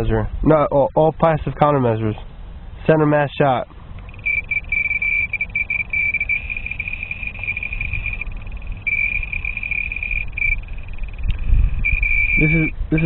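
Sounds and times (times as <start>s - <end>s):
high steady beep: 4.0s - 13.0s.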